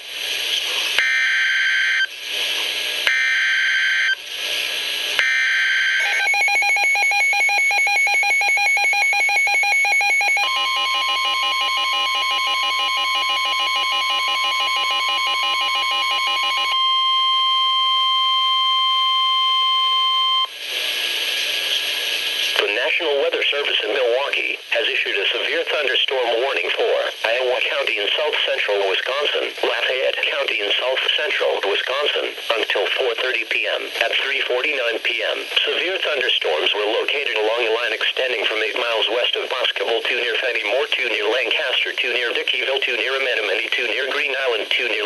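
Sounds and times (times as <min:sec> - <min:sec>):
radio hiss: 0:00.0 - 0:01.0, 0:02.0 - 0:03.1, 0:04.1 - 0:05.2, 0:20.5 - 0:45.0
fast pulsing electronic alarm: 0:01.0 - 0:02.1, 0:03.1 - 0:04.2, 0:05.2 - 0:20.5
steady single-pitch alert tone: 0:05.2 - 0:20.5.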